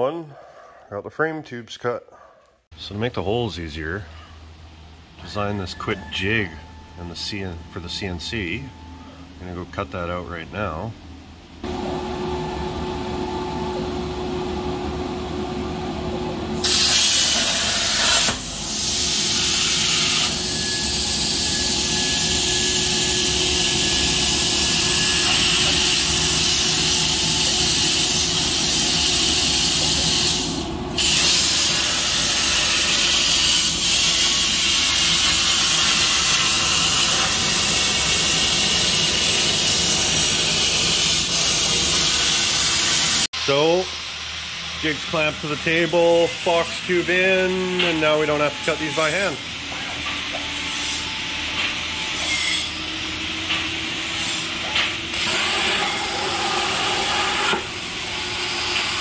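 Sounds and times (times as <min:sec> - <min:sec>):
machine hum: 0:06.3 - 0:59.0
plasma torch hissing: 0:16.6 - 0:49.6, 0:53.9 - 0:59.0.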